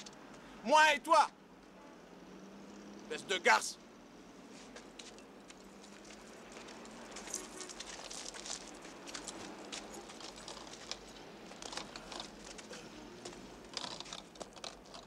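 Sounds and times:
low street background: 0.0s - 15.0s
footsteps on gritty snow: 4.5s - 11.0s.

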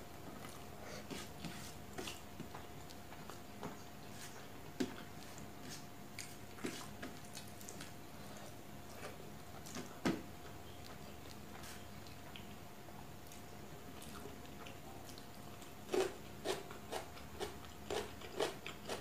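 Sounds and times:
wet chewing and mouth smacks: 10.8s - 12.6s.

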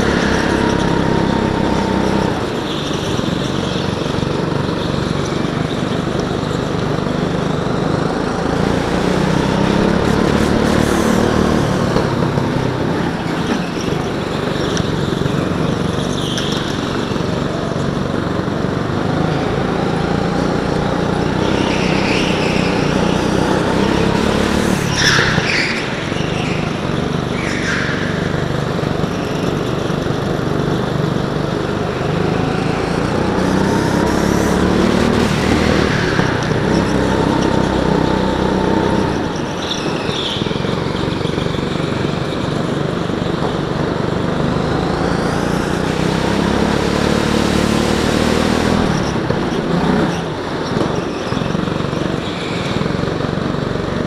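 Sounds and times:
tyres squealing: 0.0s - 6.6s, 8.4s - 42.3s
go-kart engine: 0.0s - 54.0s
other go-kart engines: 0.0s - 54.0s.

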